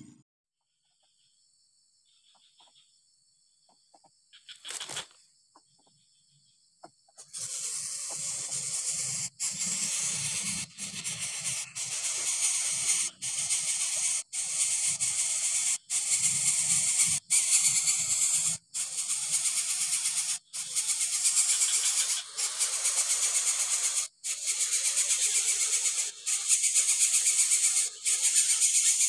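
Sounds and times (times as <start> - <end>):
faint insect hum: 0.7 - 29.0
bird nestling hissing: 7.2 - 29.0.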